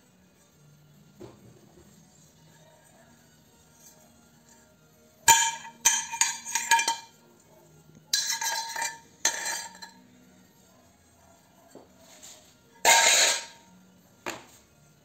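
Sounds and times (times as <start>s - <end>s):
metal shell clinking and scraping: 3.6s - 10.1s, 12.8s - 13.7s.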